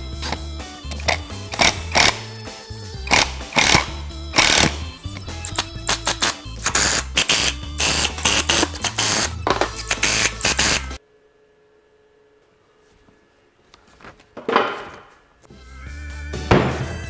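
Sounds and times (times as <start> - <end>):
background music with bass line: 0.0 - 11.0, 15.5 - 17.0
power driver driving screws: 0.2 - 2.3, 3.1 - 11.0.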